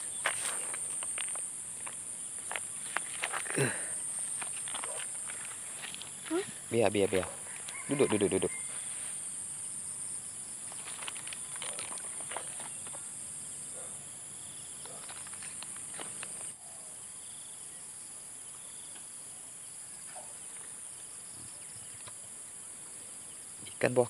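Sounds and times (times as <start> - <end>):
insects chorus: 0.0 - 24.0
light clicks and rustles: 10.7 - 13.0.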